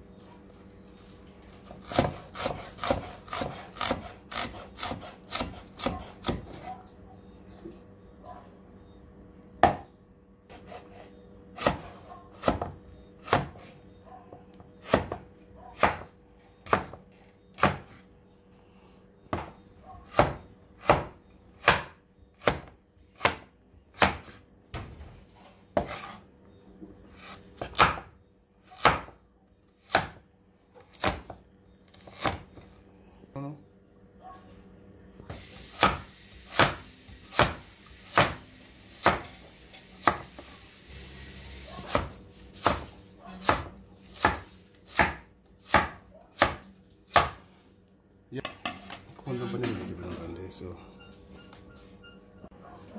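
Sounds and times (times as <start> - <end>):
knife chopping on wooden board: 1.7 - 6.7, 9.6 - 9.9, 10.5 - 13.8, 14.8 - 17.0, 17.6 - 18.0, 19.3 - 24.4, 25.8 - 26.2, 27.2 - 28.1, 28.7 - 29.2, 29.8 - 30.2, 30.8 - 32.6, 35.8 - 38.4, 39.0 - 39.4, 40.0 - 40.4, 41.7 - 47.4.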